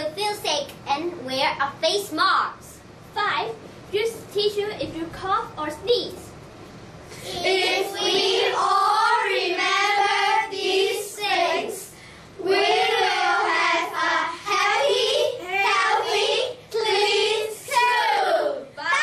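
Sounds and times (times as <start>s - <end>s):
young children singing: 7.2s - 19.0s.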